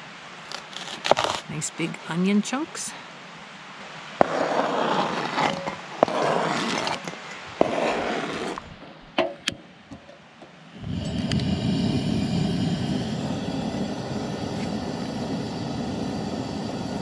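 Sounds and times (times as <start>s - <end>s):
knife scraping cutting board: 0.5s - 1.5s, 4.2s - 8.6s
gas burner roaring: 4.2s - 6.9s, 10.7s - 17.0s.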